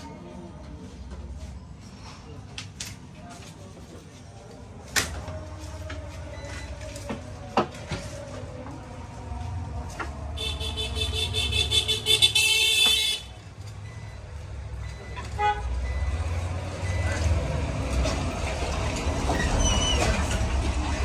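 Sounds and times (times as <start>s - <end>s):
street traffic rumble: 0.0s - 21.0s
shrill vehicle horn: 10.4s - 13.3s, 15.2s - 15.9s.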